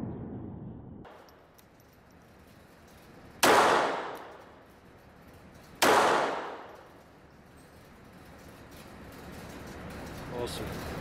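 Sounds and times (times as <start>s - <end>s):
pistol shots with ringing echo: 3.4s - 4.5s, 5.8s - 6.8s.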